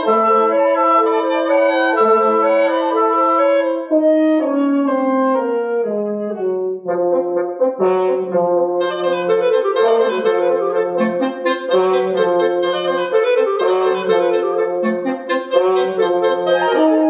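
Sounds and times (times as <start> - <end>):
woodwind quintet playing: 0.0 - 17.0.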